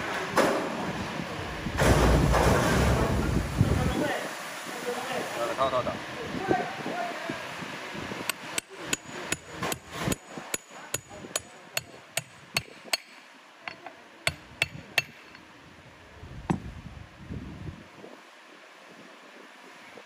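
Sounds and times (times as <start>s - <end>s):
hammer tapping metal tube: 10.6s - 15.4s.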